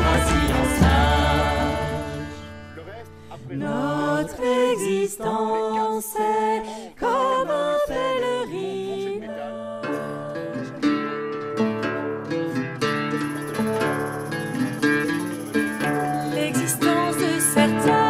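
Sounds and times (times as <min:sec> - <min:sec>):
folk melody over drone: 0:00.0 - 0:02.9.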